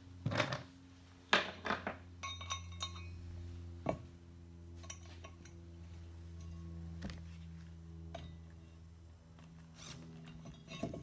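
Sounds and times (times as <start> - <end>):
steady low hum: 0.0 - 11.0
ringing metallic clinks: 2.2 - 3.2.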